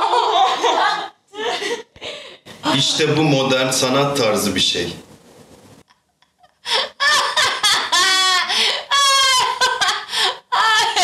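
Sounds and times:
woman laughing hard: 0.0s - 3.0s, 6.4s - 11.0s.

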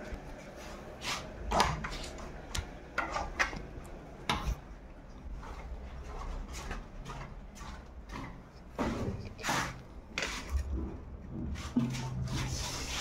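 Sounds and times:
footsteps: 4.3s - 13.0s.

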